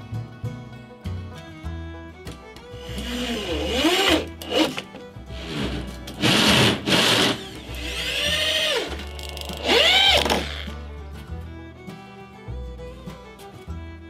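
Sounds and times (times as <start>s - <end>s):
background music: 0.0s - 14.0s
electric drill driving screws: 2.8s - 10.7s.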